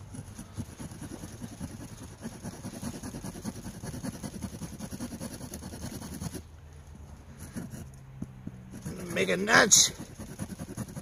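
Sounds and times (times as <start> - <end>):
saw cutting wooden log: 0.0 - 6.4, 8.6 - 11.0.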